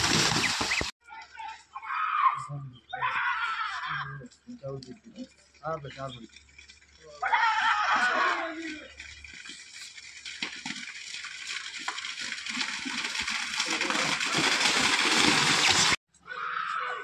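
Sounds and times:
buffaloes splashing through mud: 0:00.0 - 0:01.0, 0:05.0 - 0:16.0.

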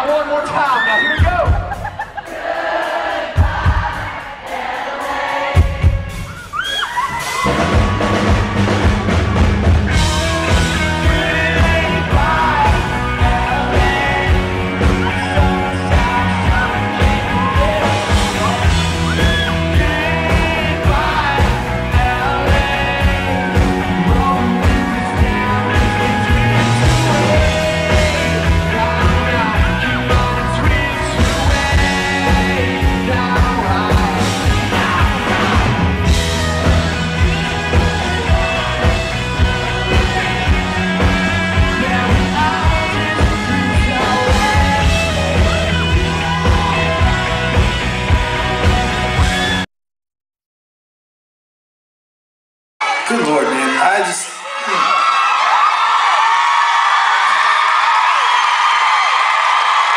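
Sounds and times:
live rock band: 0:00.0 - 0:49.7
man singing lead vocal: 0:09.9 - 0:47.5.

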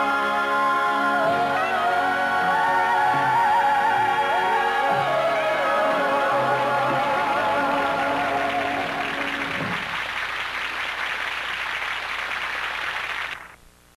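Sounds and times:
audience applause: 0:07.4 - 0:13.6.

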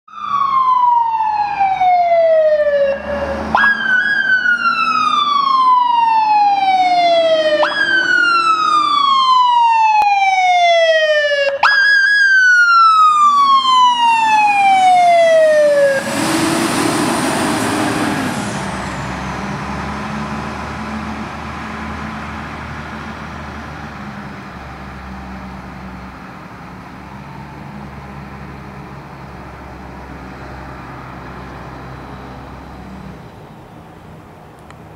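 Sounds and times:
siren wailing: 0:00.1 - 0:19.1
truck passing with engine noise: 0:00.1 - 0:34.9.

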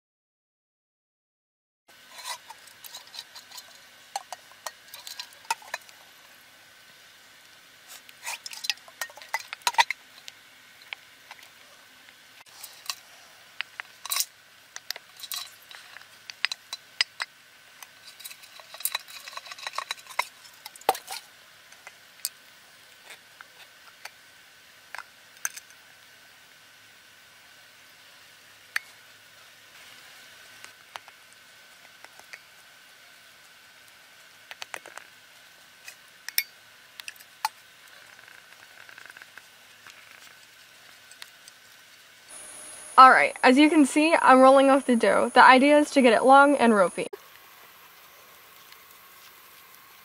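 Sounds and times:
spoon stirring dough in mug: 0:02.1 - 0:05.9.

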